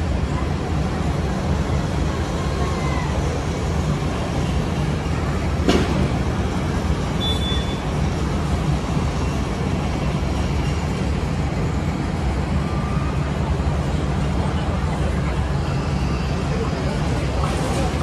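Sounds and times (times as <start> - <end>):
low rumble of vehicles and machinery: 0.0 - 18.0
sharp knock: 5.6 - 6.2
short high beep: 7.2 - 7.8.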